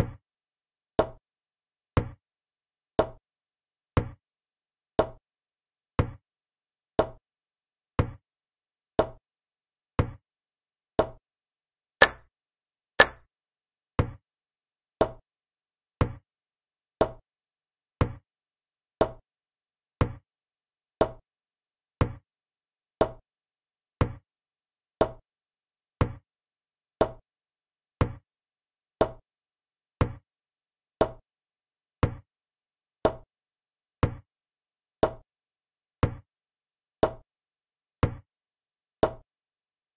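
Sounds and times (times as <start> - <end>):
wooden chess move clicks: 12.0 - 12.2, 13.0 - 13.2.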